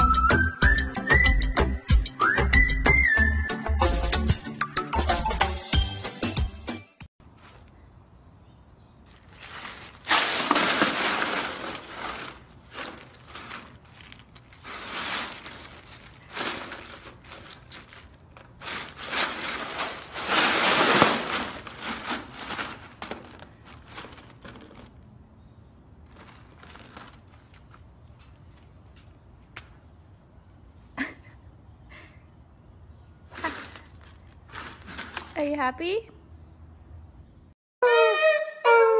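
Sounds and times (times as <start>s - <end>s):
ice cubes clattering and crunching: 9.1s - 24.9s, 33.4s - 35.3s.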